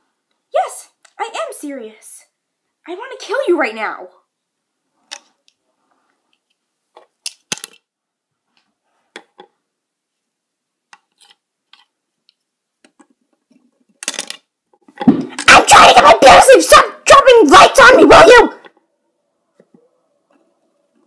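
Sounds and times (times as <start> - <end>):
plastic toys clicking and tapping: 6.4 - 7.9, 10.9 - 14.5.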